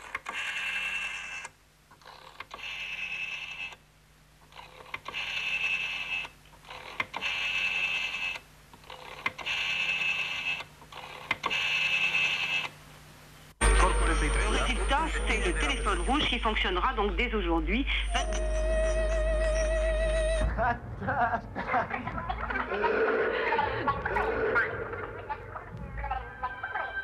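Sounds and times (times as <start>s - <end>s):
steady low hum: 12.8s - 26.4s
machine bursts with ringing edge: 13.6s - 16.7s.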